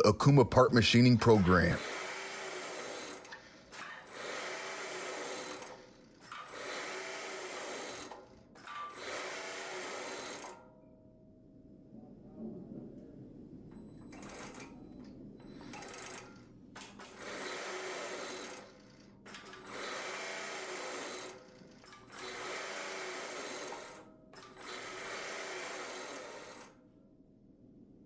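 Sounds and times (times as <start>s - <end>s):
hydraulic pump running: 0.0s - 10.6s, 15.5s - 26.8s.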